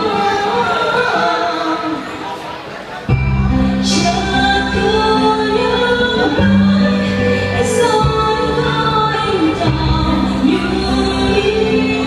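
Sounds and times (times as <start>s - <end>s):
woman singing into microphone: 0.0s - 2.4s, 3.5s - 12.0s
amplified backing track with bass: 3.1s - 12.0s.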